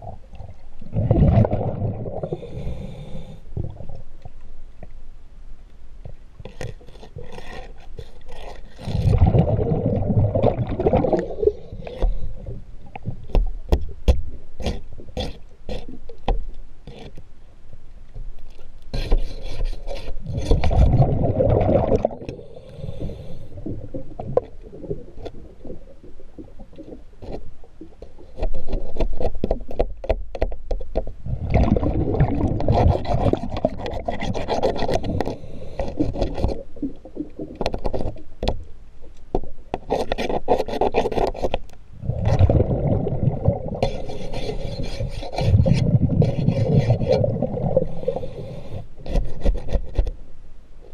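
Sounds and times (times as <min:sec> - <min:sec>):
exhaled bubbles rumbling: 0:00.0 - 0:02.5, 0:08.9 - 0:13.4, 0:20.3 - 0:22.9, 0:23.5 - 0:27.2, 0:31.2 - 0:37.8, 0:42.0 - 0:44.1, 0:44.8 - 0:48.3
diver breathing through regulator: 0:02.1 - 0:03.5, 0:22.2 - 0:24.0, 0:34.9 - 0:36.4, 0:43.8 - 0:49.2.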